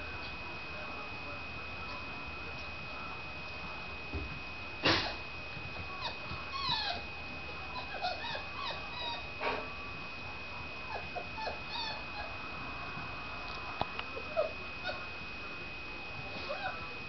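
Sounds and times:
puppies yipping and whimpering: 6.0s - 7.1s, 7.7s - 9.4s, 10.9s - 12.4s, 14.2s - 15.1s, 16.4s - 16.8s.

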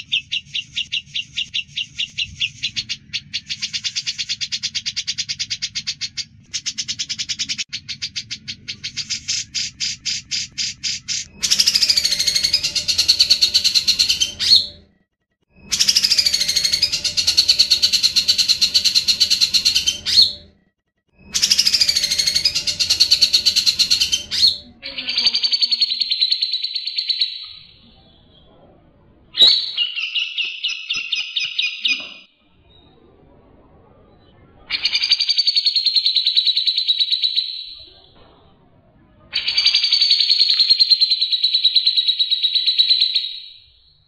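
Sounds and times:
bird singing rattling trills: 0.0s - 14.8s, 15.6s - 20.5s, 21.2s - 27.7s.

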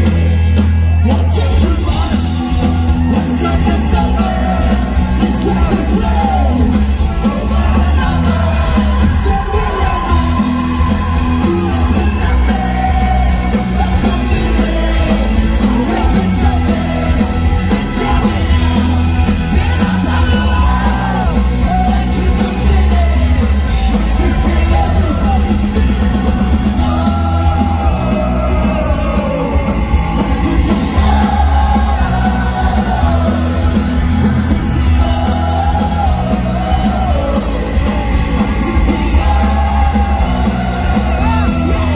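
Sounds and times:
heavy bass: 0.0s - 41.9s
live ska-punk band playing: 0.0s - 41.9s.

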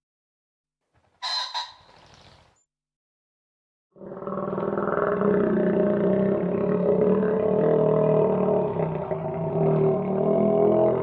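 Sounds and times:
crocodile growling: 4.0s - 11.0s.

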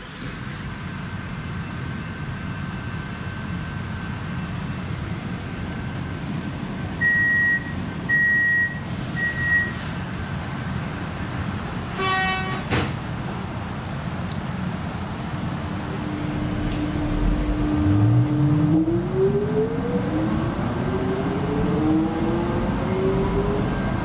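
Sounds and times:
train carriage low hum: 0.0s - 24.0s
high door warning beeps: 7.0s - 9.8s.

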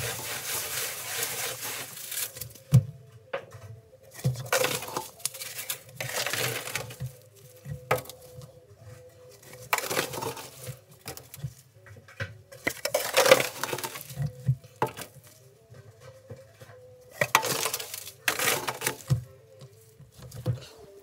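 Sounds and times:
powdered detergent pouring: 0.0s - 2.4s.

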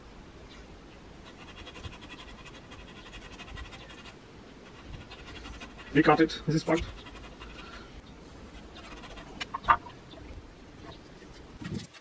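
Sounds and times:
knife sawing through webbing: 1.2s - 7.8s, 8.5s - 9.5s.

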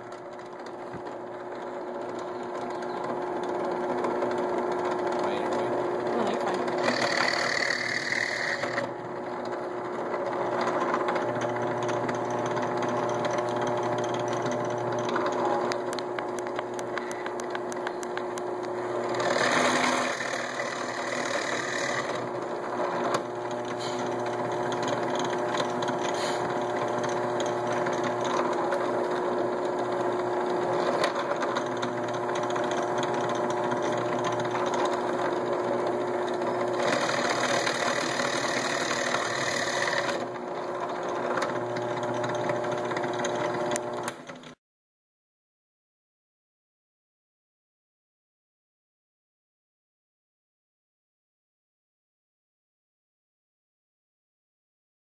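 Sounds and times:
drill press motor running: 0.0s - 44.6s
drill bit cutting wood: 4.9s - 9.0s, 18.9s - 44.2s.

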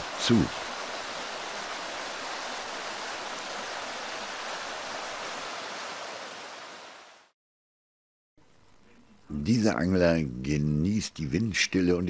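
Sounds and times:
stream rushing over rocks: 0.0s - 7.3s.

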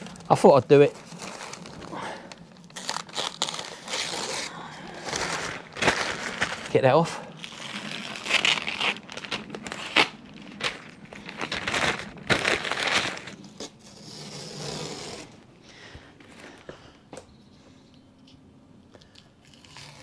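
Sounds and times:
paper rustling and crinkling: 0.0s - 15.4s.

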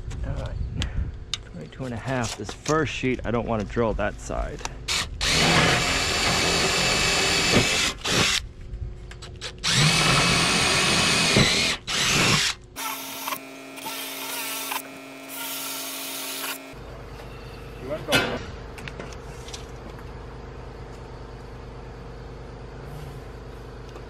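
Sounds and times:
cordless drill boring metal: 4.9s - 8.4s, 9.5s - 16.8s.

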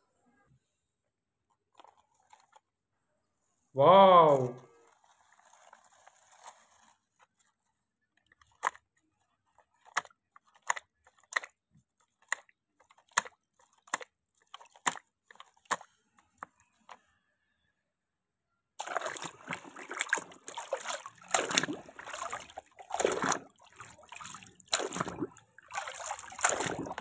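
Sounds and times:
toy car crunching through mud: 8.2s - 17.0s, 18.8s - 27.0s.

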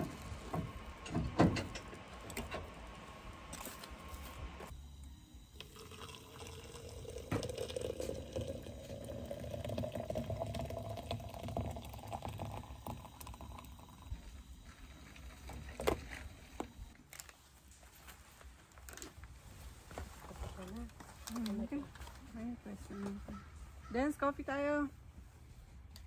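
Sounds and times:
liquid pouring into a cup: 5.6s - 14.1s.

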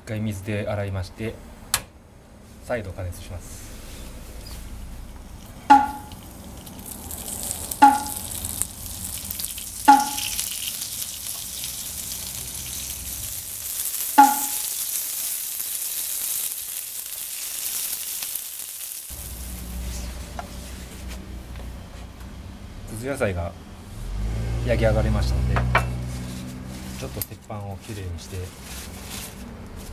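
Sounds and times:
vegetables sizzling on griddle: 5.3s - 20.4s.

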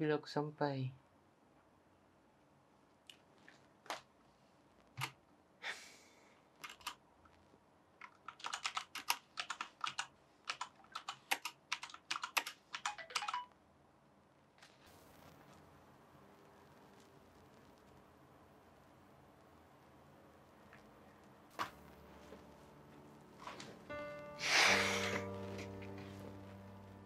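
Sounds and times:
typing on computer keyboard: 6.6s - 7.0s, 8.0s - 13.5s.

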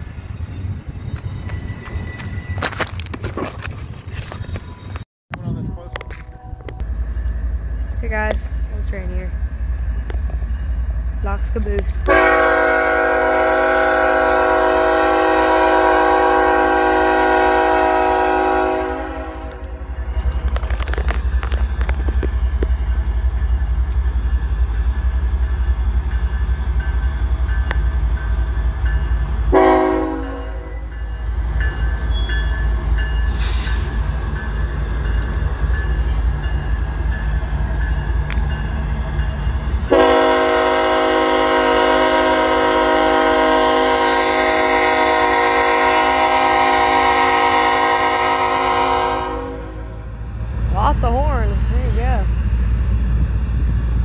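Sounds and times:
passing train rumble: 0.0s - 54.0s
locomotive air horn blasts: 12.0s - 19.9s, 29.5s - 30.9s, 39.9s - 50.0s.

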